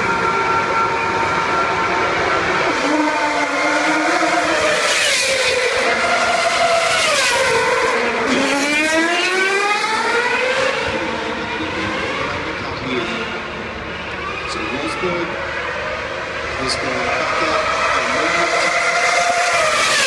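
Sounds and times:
racing car engines passing: 0.0 - 20.0
engine accelerating: 2.1 - 13.4.

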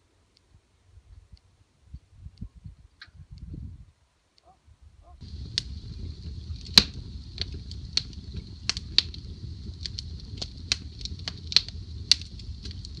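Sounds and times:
low rumble of flame: 4.8 - 13.0
fire crackles and pops: 5.2 - 13.0.

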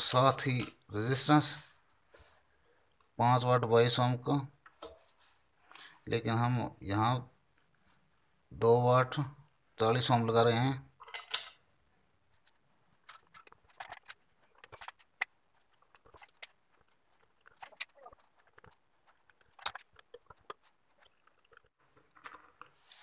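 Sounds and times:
faint clicks and scratches: 12.2 - 23.0.

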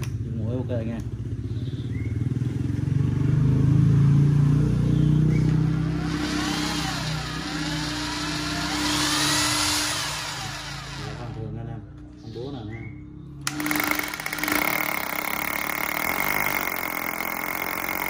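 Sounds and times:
harsh high cutting sound: 5.7 - 11.4, 13.5 - 18.0
electric drill boring into wood: 5.7 - 11.6, 13.4 - 18.0.

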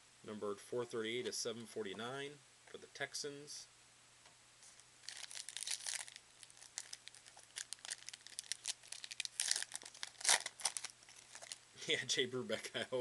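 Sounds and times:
wrapper crinkling and tearing: 4.7 - 11.6.

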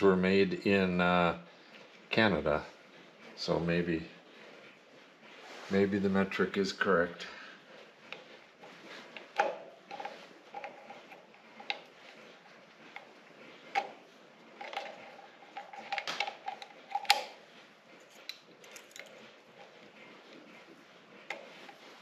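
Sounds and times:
metal tools clinking and tapping: 18.1 - 19.1.

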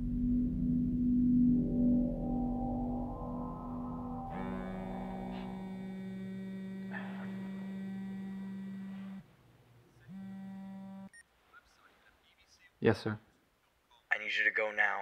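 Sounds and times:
mobile phone vibrating: 4.3 - 9.3, 10.1 - 11.2.

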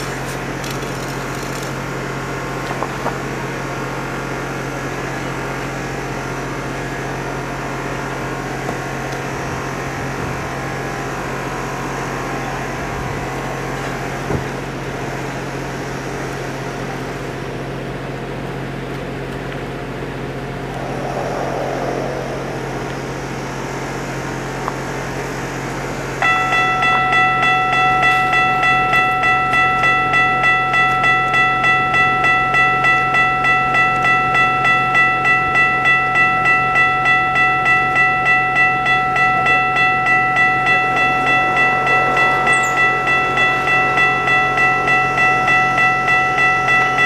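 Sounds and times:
level crossing warning bell: 26.2 - 47.0.

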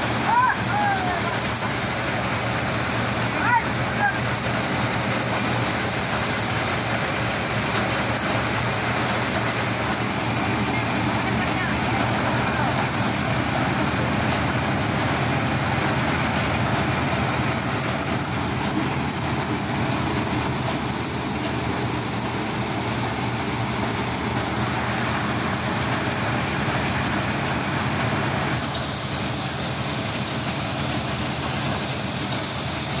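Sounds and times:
threshing drum spinning: 0.0 - 33.0
tractor engine: 0.0 - 33.0.

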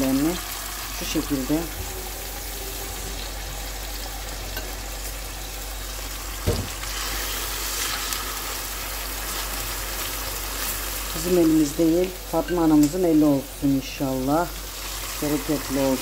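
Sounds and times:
chicken sizzling in oil: 0.0 - 16.0
knock: 6.5 - 6.7.

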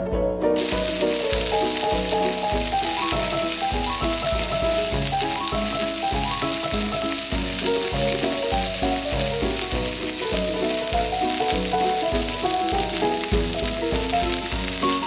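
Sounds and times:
frying sizzle: 0.6 - 15.0.

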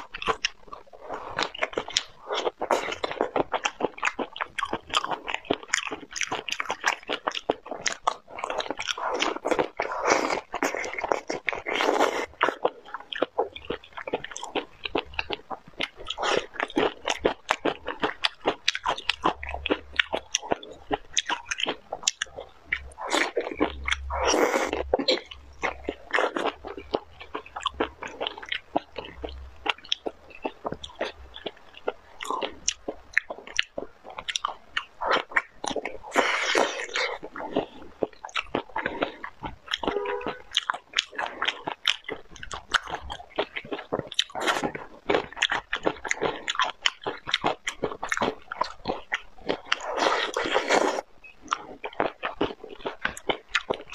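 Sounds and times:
person chewing wet crunchy food: 0.0 - 53.9
mouth noises: 18.9 - 31.4, 34.8 - 41.4.

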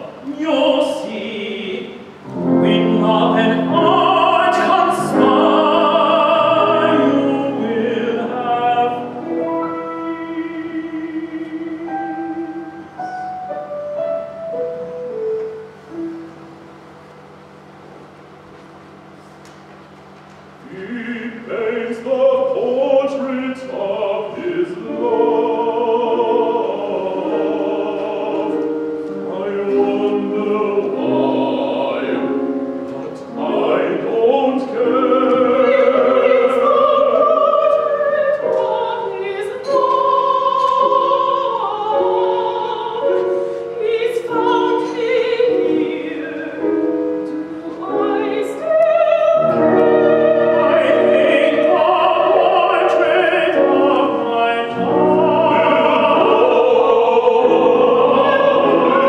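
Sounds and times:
operatic voice singing: 0.0 - 12.8, 20.7 - 28.7, 29.3 - 47.0, 47.6 - 59.0
instrumental accompaniment: 24.8 - 59.0.

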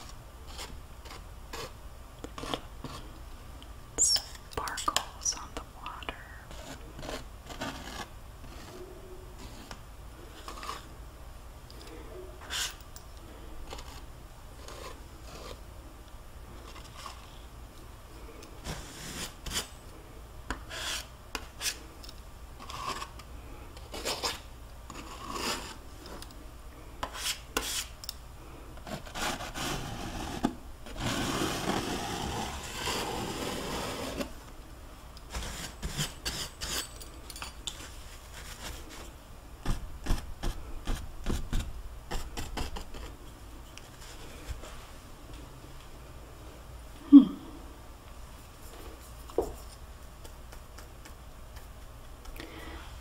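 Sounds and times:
palette knife scraping canvas: 0.5 - 1.8, 6.5 - 8.8, 9.4 - 10.9, 13.7 - 15.7, 18.6 - 19.7, 20.7 - 21.8, 23.8 - 25.8, 27.0 - 27.9, 28.8 - 34.4, 35.3 - 36.9.

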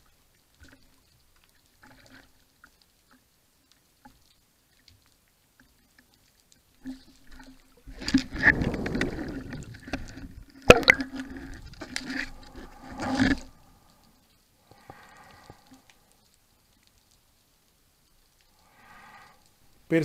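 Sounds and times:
underwater rush of water: 4.0 - 20.0.

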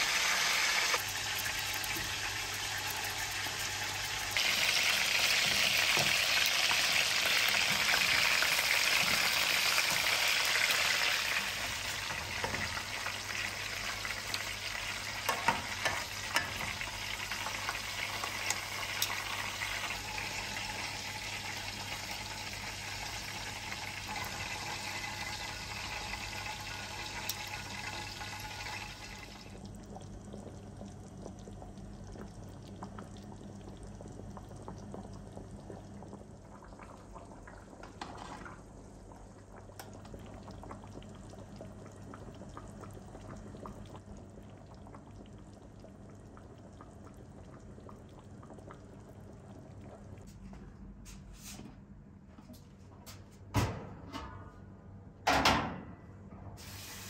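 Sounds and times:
sauce sizzling in a frying pan: 0.0 - 29.4, 56.6 - 57.0
sauce bubbling with small pops: 29.5 - 50.4.

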